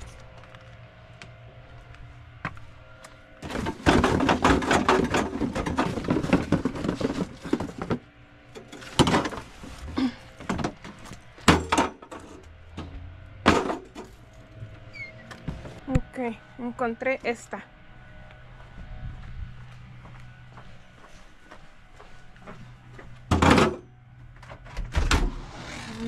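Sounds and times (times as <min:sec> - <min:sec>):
household items clattering: 0:03.4 - 0:08.0, 0:08.6 - 0:12.4.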